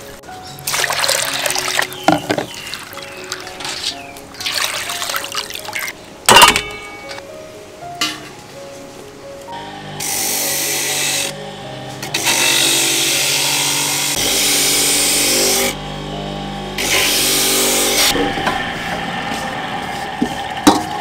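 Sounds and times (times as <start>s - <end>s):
electric coconut grater rasping: 9.6s - 21.0s.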